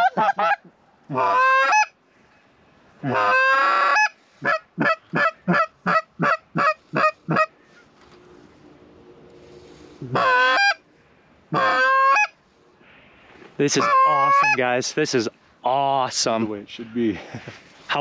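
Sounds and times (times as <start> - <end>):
goose clucking: 0.0 - 2.0, 3.0 - 7.6, 10.0 - 10.8, 11.5 - 12.4, 13.6 - 14.6
goose honking: 0.0 - 2.0, 3.0 - 7.8, 10.0 - 10.8, 11.5 - 12.4, 13.6 - 14.6.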